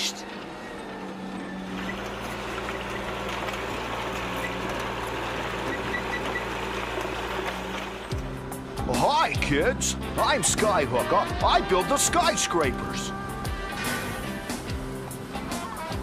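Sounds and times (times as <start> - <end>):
traffic and machinery rumble: 0.0 - 16.0.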